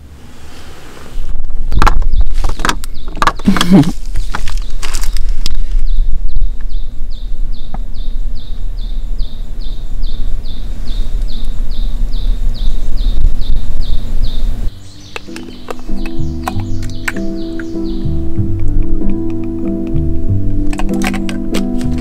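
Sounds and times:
low steady rumble: 5.6s - 14.8s
bird calling high falling notes: 6.8s - 18.4s.

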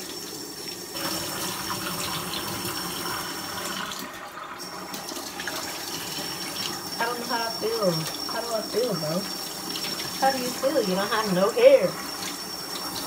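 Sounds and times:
tap water splashing: 4.8s - 7.0s, 7.9s - 10.8s, 12.0s - 13.0s.

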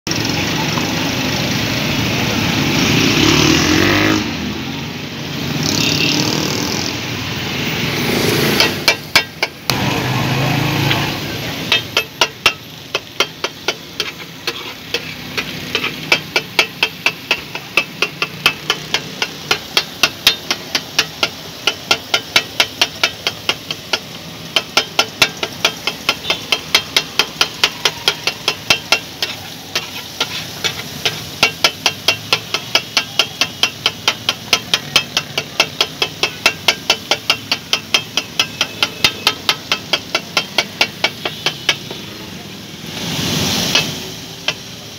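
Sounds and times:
street traffic rumble: 0.0s - 44.9s
spatula chopping on metal griddle: 8.0s - 9.9s, 10.6s - 44.9s.

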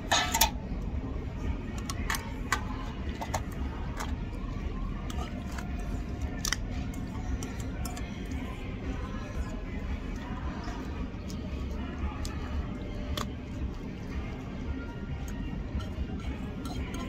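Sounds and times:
tableware clicking and clinking: 0.0s - 0.6s
restaurant background hum: 0.0s - 17.0s.

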